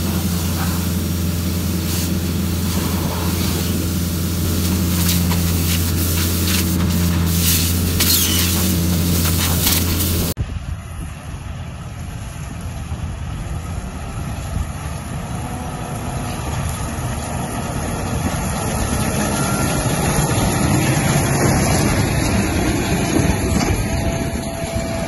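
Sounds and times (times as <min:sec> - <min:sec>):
square baler running: 0:00.0 - 0:10.4
tractor engine: 0:00.0 - 0:10.4, 0:11.1 - 0:25.0.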